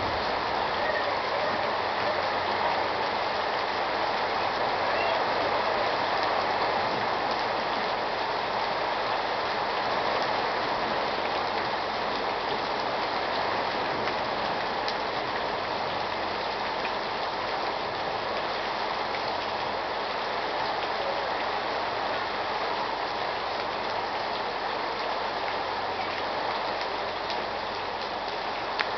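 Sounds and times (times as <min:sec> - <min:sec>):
torrential rain: 0:00.0 - 0:28.9.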